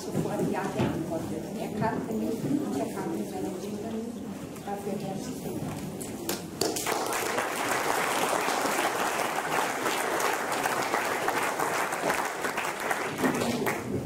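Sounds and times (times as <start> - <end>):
audience applauding: 6.6 - 14.0.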